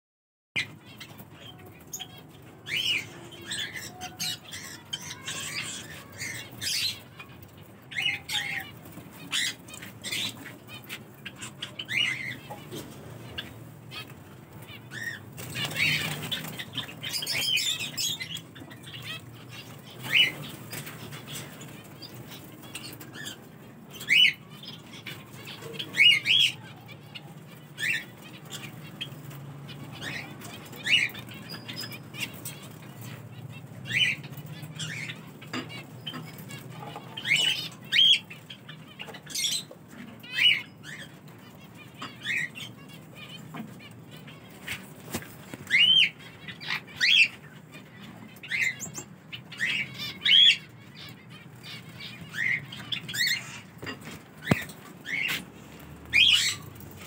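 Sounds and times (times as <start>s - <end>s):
birds chirping: 0.6s - 57.0s
squawky bird calls: 56.1s - 57.0s.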